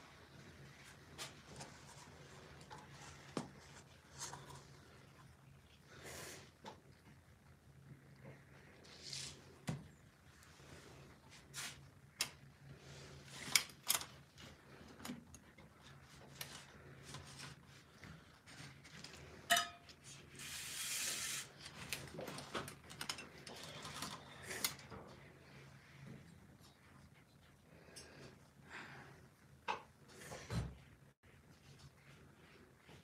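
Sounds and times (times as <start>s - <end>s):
low steady hum: 0.0s - 20.9s.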